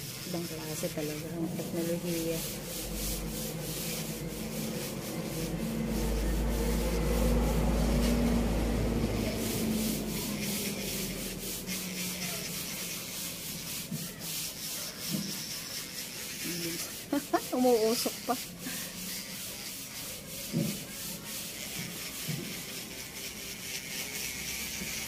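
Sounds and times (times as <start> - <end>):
scratchy sanding of nail: 0.0 - 25.0.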